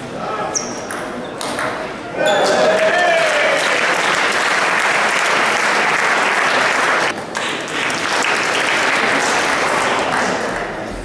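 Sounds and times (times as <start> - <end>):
spectators clapping: 2.6 - 10.9.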